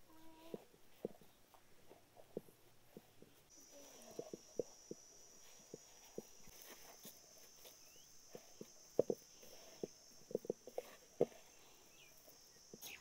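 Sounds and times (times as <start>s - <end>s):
hands kneading dough: 0.0s - 13.0s
steady high-pitched hum: 2.4s - 13.0s.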